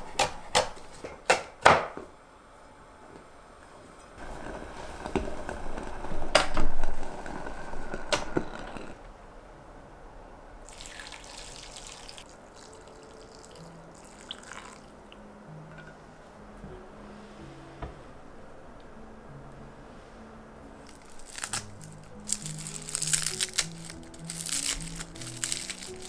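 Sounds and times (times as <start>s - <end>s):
broth pouring and splashing: 10.7s - 14.9s.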